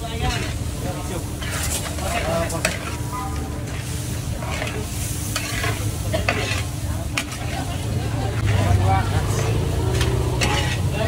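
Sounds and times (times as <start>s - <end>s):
frying sizzle: 0.0s - 11.0s
metal spatula scraping wok: 0.0s - 11.0s
metal clanking on metal: 9.9s - 10.9s.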